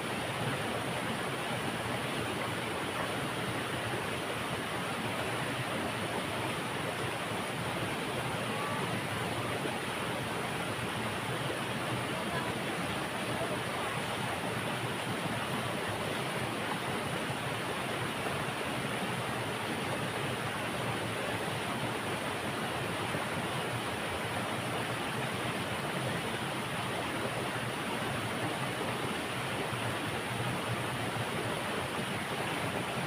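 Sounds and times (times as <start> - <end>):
river rushing over rocks: 0.0 - 33.0.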